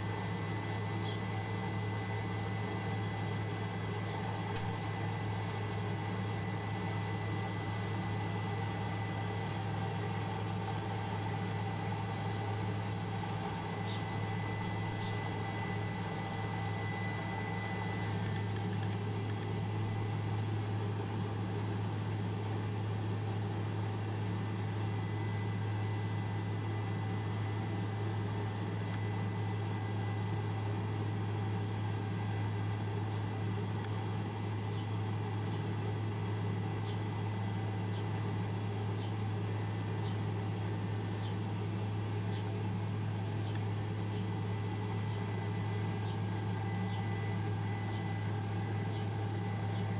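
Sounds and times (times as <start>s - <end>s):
thin high whine: 0.0s - 20.5s
helicopter engine and rotor drone: 0.0s - 49.9s.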